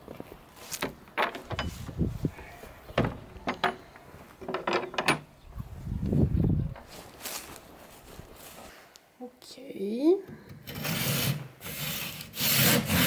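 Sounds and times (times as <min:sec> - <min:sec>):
footsteps on gravel and grass: 0:00.0 - 0:02.8, 0:05.6 - 0:08.9
wooden door opening: 0:00.8 - 0:02.1, 0:02.9 - 0:05.3
door latch clicking and rattling: 0:03.0 - 0:05.3.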